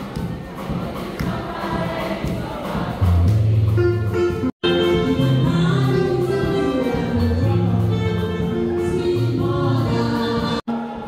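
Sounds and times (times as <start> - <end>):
choir singing: 0.0 - 4.1, 5.0 - 11.0
crowd noise in a hall: 0.0 - 11.0
steady bass line: 3.0 - 10.6.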